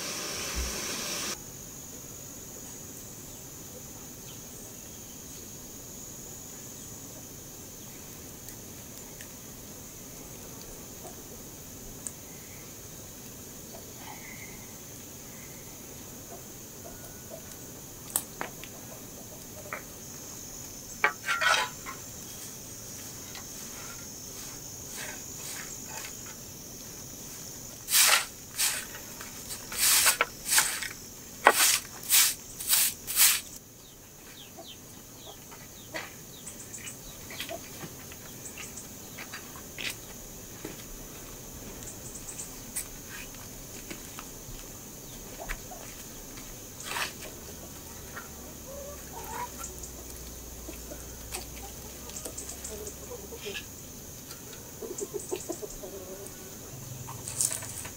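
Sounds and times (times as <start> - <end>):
broom sweeping ash and metal: 0.0 - 1.4, 21.0 - 26.3, 27.3 - 33.6, 46.8 - 47.4
high insect buzz: 0.0 - 3.4, 19.0 - 37.5.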